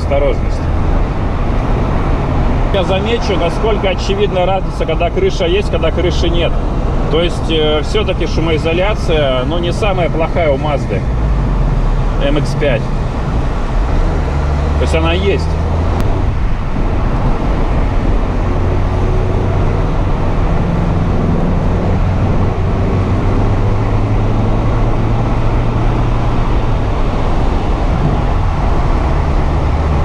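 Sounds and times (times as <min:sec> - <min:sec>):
car engine droning: 0:00.0 - 0:30.0
wind noise: 0:15.5 - 0:30.0.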